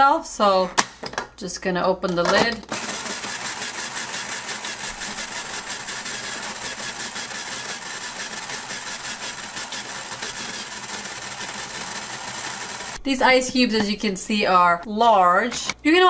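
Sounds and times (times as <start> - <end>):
ice shaver motor grinding: 2.7 - 13.0.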